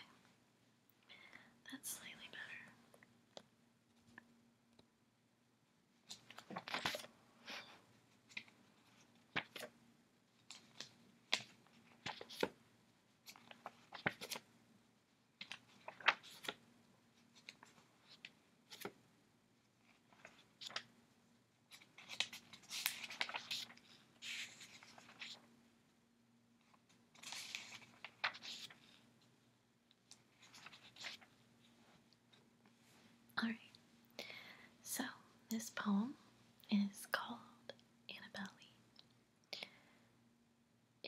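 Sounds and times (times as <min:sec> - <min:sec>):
faint steady hum: 0:00.0 - 0:41.0
paper pages rustling: 0:06.0 - 0:09.8, 0:10.4 - 0:12.6, 0:13.2 - 0:14.5, 0:15.4 - 0:19.0, 0:19.8 - 0:20.9, 0:21.7 - 0:25.5, 0:26.6 - 0:29.3, 0:30.0 - 0:32.4.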